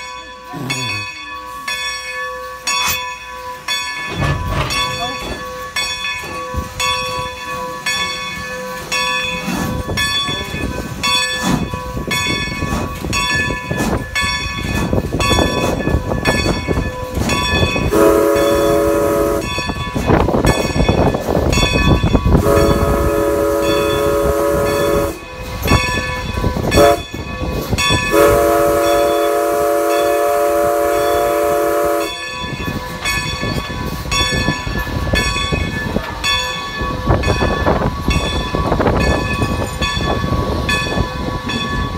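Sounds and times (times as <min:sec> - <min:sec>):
locomotive bell ringing: 0:00.0 - 0:41.9
locomotive running on rails: 0:00.0 - 0:41.9
steam locomotive whistle: 0:17.8 - 0:19.7, 0:22.3 - 0:25.3, 0:26.7 - 0:27.2, 0:28.1 - 0:32.3.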